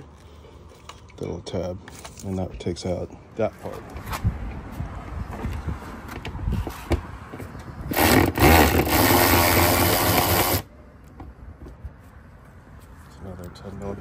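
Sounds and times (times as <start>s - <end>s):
cordless power driver running: 7.9s - 10.7s.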